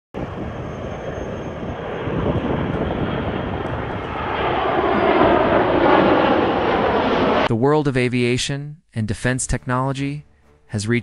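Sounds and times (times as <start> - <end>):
jet engines roaring overhead: 0.2 - 7.5.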